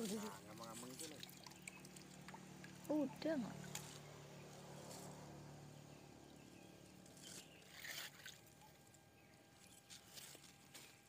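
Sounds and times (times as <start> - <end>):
hand net splashing in water: 7.3 - 8.8.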